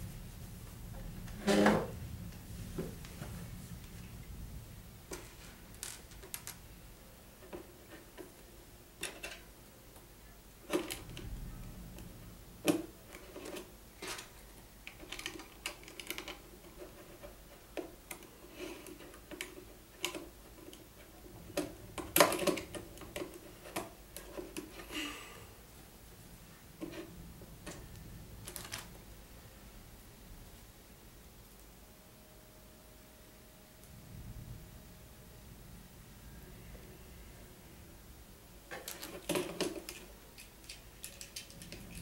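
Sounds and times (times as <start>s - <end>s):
plastic bricks clicking together: 38.7s - 42.0s.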